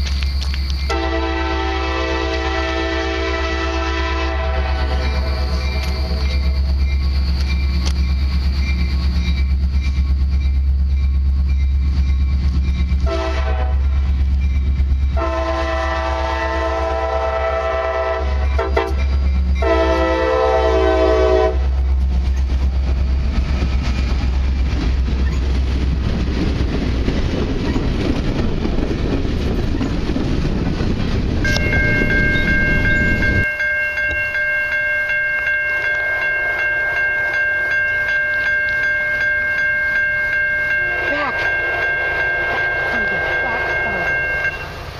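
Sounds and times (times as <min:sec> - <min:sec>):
crossing signal bell ringing: 0:00.0 - 0:01.5, 0:03.5 - 0:15.4, 0:18.0 - 0:22.5, 0:31.4 - 0:44.9
locomotive horn blasts: 0:00.9 - 0:06.2, 0:13.0 - 0:14.0, 0:15.2 - 0:19.0, 0:19.6 - 0:21.8, 0:31.5 - 0:33.6, 0:40.7 - 0:44.5.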